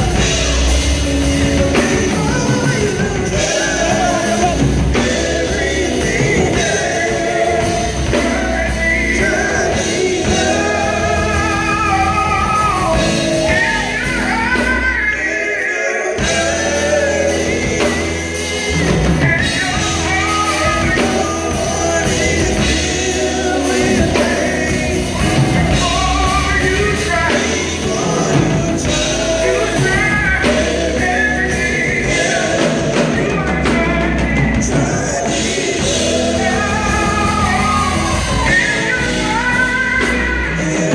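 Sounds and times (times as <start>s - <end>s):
drum kit: 0.0s - 40.9s
gospel group singing: 0.0s - 40.9s
keyboard: 0.0s - 40.9s
electric guitar: 16.2s - 40.9s.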